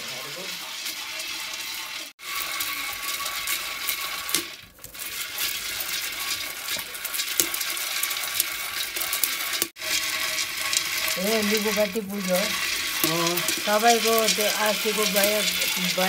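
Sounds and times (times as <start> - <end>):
beans rattling and crackling in pot: 0.0 - 16.0.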